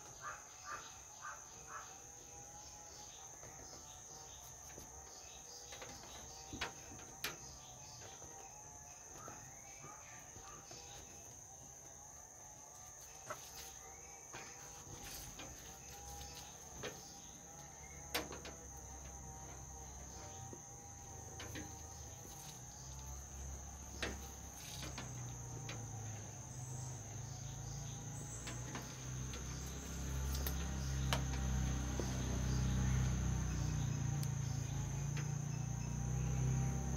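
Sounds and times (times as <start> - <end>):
crickets droning: 0.0 - 36.9.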